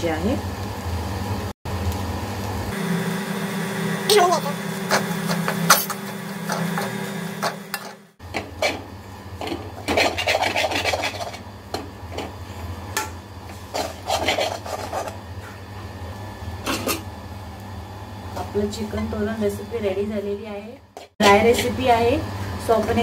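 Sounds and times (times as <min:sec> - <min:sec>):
metal spatula scraping a pan: 0:08.6 - 0:11.5, 0:13.5 - 0:15.6.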